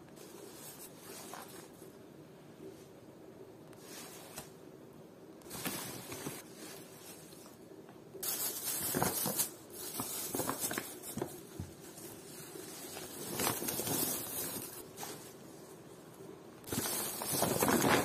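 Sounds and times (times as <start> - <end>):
plastic bags rustling: 5.4 - 18.0.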